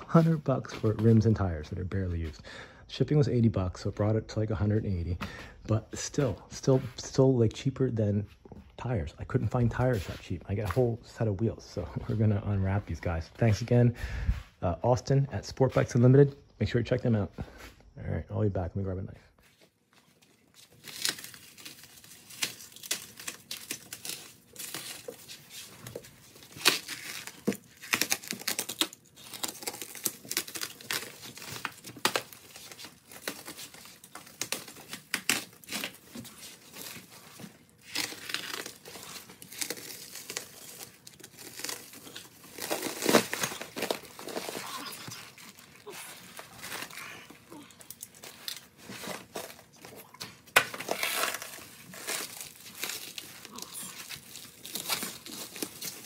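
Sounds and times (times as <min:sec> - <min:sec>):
plastic wrap crinkling and ripping: 0:19.6 - 0:56.0.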